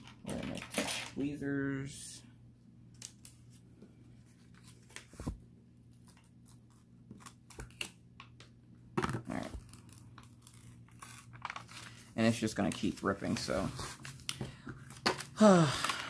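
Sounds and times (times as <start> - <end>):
paper crinkling and tearing: 9.3 - 16.0.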